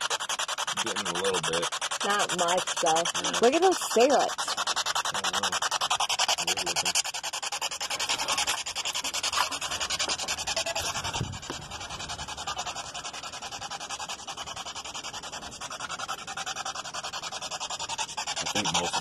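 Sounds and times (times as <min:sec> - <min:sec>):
pulsing radio static: 0:00.0 - 0:07.0.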